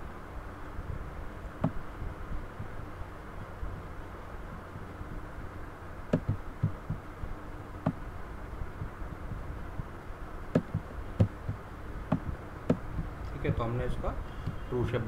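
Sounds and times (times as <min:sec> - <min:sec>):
low room hum: 0:00.0 - 0:15.0
computer mouse clicks: 0:06.1 - 0:06.8.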